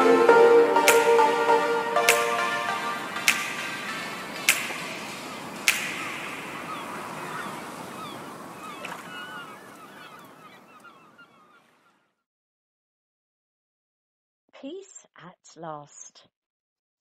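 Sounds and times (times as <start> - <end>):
hissy wash: 0.8 - 9.5
sharp crack: 2.0 - 8.0
short chirping calls: 3.2 - 11.6.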